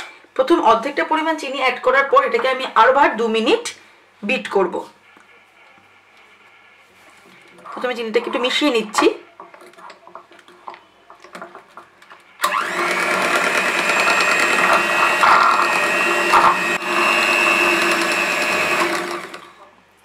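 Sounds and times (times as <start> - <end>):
electric hand mixer running: 12.4 - 19.6.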